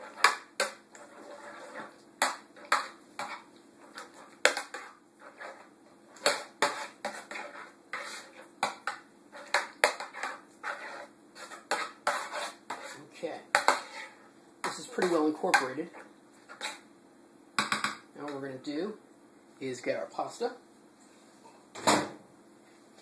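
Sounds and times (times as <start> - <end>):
utensil scraping dish: 0.0 - 16.8.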